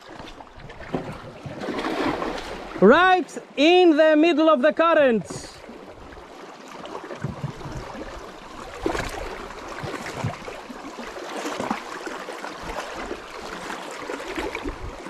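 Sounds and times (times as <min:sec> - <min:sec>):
sea water splashing on rocks: 0:00.1 - 0:02.9.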